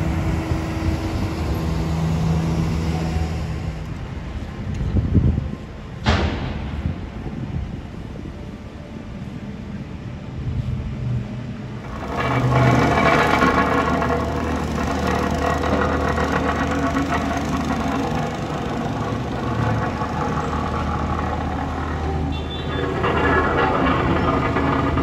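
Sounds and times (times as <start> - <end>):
heavy machinery engine running: 11.7 - 25.0
mechanical clatter: 11.8 - 25.0.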